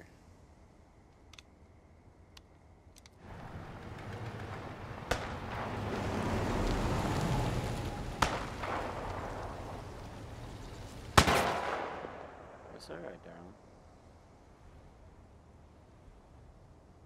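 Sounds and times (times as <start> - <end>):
sharp cracks: 3.0 - 12.8
truck engine rumble: 3.2 - 11.4
tyres on gravel: 3.2 - 11.6.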